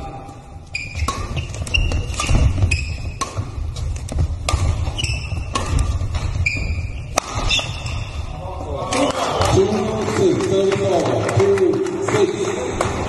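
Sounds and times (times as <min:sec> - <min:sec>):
shoes squeaking on court floor: 0:00.6 - 0:08.3
racket hitting shuttlecock: 0:00.8 - 0:08.0.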